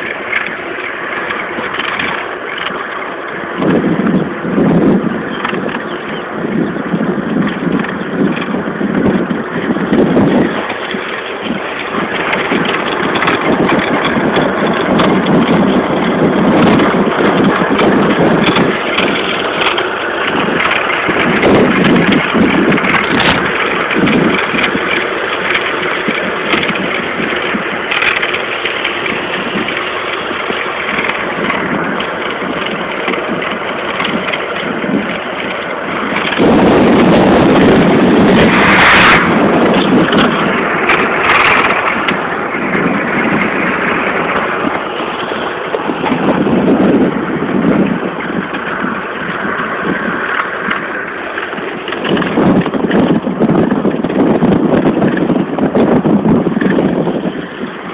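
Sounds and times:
electric bicycle running noise: 0.0s - 57.9s
wind on microphone: 0.0s - 57.9s.

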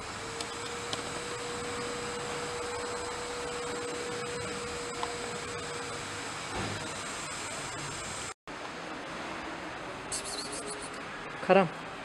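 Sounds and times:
mid-pitched hum: 0.0s - 8.8s.

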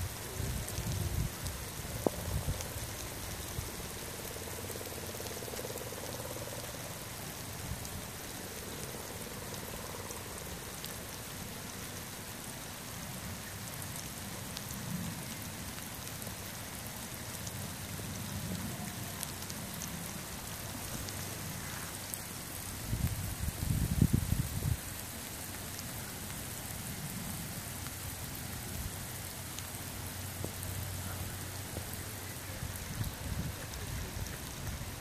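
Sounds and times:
raindrops ticking: 0.0s - 35.0s
steady rain: 0.0s - 35.0s.

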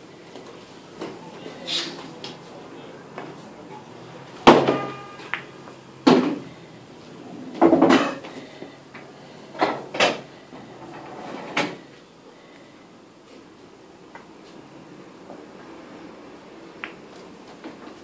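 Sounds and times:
pool balls clacking: 3.1s - 11.8s, 16.7s - 18.0s
cue striking ball: 4.4s - 6.5s.

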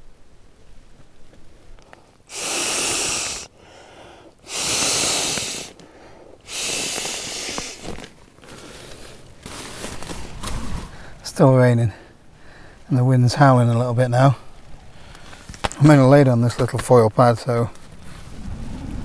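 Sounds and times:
in-breaths: 1.8s - 11.2s, 11.9s - 12.9s, 14.4s - 15.8s
breaths blowing into valve: 2.3s - 5.8s, 6.4s - 8.0s.

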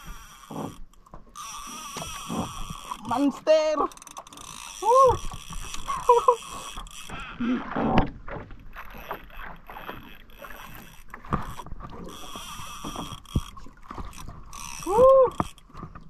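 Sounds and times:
fishing reel cranking: 0.0s - 7.4s, 8.8s - 15.7s
knocks from boat: 7.6s - 10.1s, 11.1s - 14.5s.

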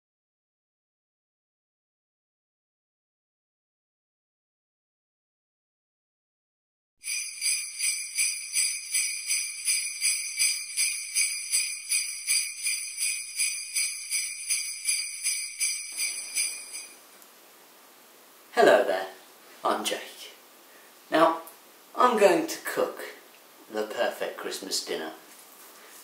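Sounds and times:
sleigh bells shaken: 7.0s - 17.0s.

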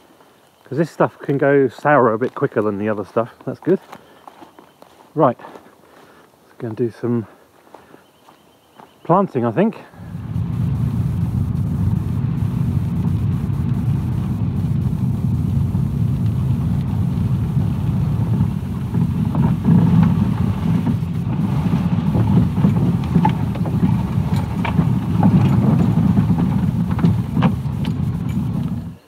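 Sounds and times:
car engine and tyre rumble: 9.9s - 29.0s.

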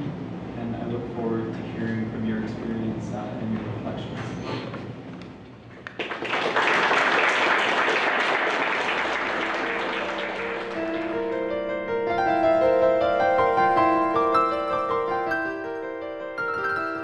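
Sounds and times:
audience applause: 5.9s - 11.2s
piano music: 8.8s - 17.0s.

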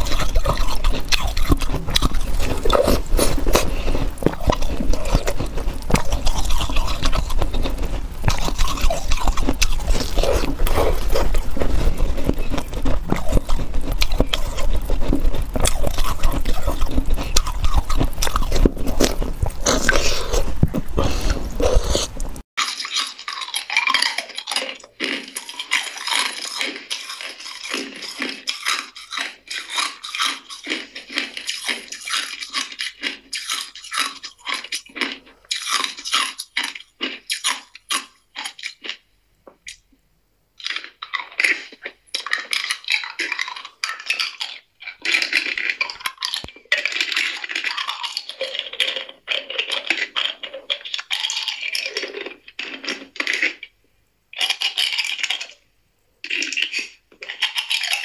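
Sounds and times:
ice cubes crunching in mouth: 0.0s - 39.8s, 40.6s - 53.7s, 54.4s - 55.6s, 56.2s - 58.0s.

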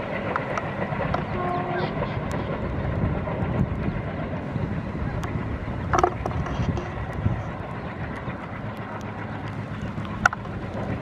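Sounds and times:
distant train rumbling on track: 0.0s - 11.0s.

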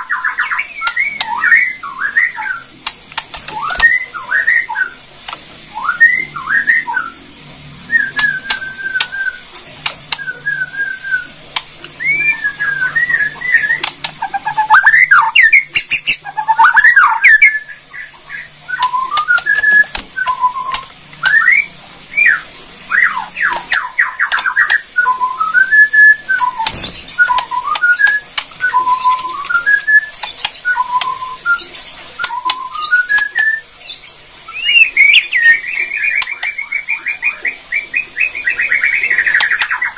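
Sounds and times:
bird singing whistled notes: 0.0s - 2.7s, 3.4s - 5.0s, 5.7s - 7.2s, 7.9s - 9.4s, 10.1s - 11.4s, 12.0s - 39.9s
sharp clicks: 2.8s - 4.0s, 8.2s - 10.4s, 11.5s - 12.0s, 13.7s - 14.2s, 26.4s - 31.2s.

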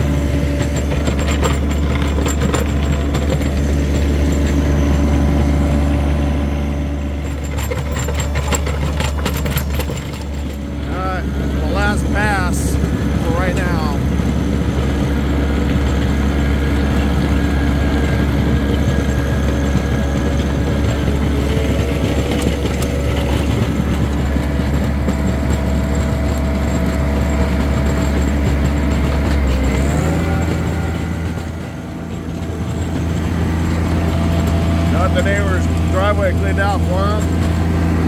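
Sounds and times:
tractor engine running: 0.0s - 38.0s.

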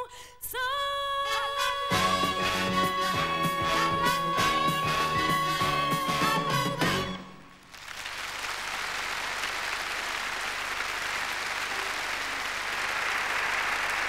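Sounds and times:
song music: 1.4s - 7.6s
audience applauding: 7.6s - 14.0s.

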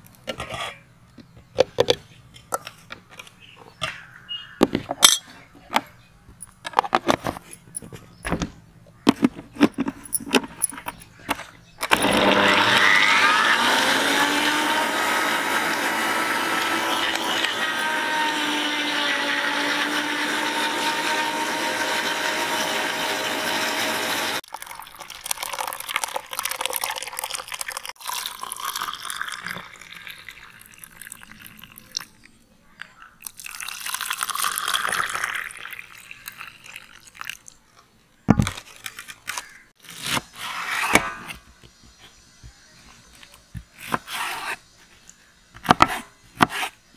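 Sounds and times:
electric mixer grinder running: 11.9s - 24.4s
juice pouring into plastic cups: 24.4s - 32.3s, 33.1s - 37.8s.

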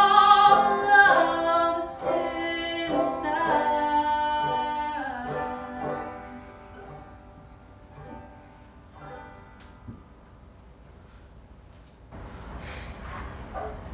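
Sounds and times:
banjo plucked notes: 0.0s - 10.1s.

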